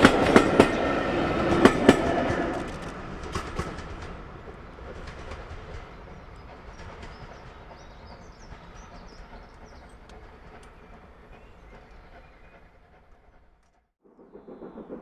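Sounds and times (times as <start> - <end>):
train wheels rumbling and clicking: 0.0 - 15.0
birds chirping: 4.4 - 13.6.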